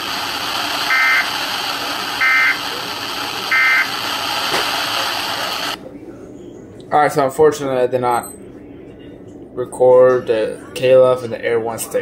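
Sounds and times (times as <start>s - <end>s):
broadcast hiss: 0.0s - 5.8s
warbling two-tone data bursts: 2.2s - 2.6s, 3.5s - 3.9s.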